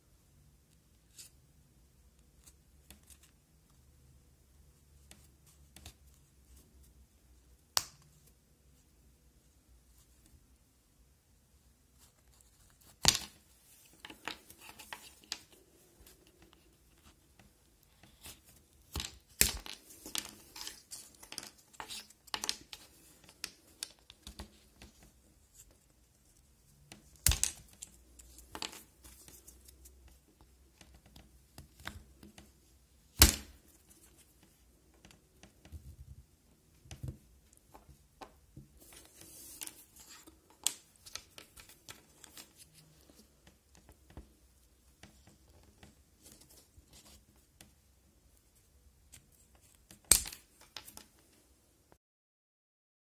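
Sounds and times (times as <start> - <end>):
plastic pieces clicking and scraping: 18.0 - 25.0.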